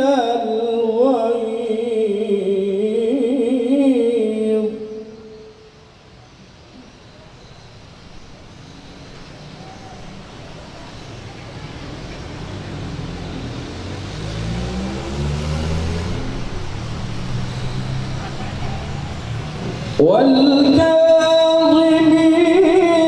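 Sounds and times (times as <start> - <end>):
vehicle engine passing by: 8.4 - 20.8.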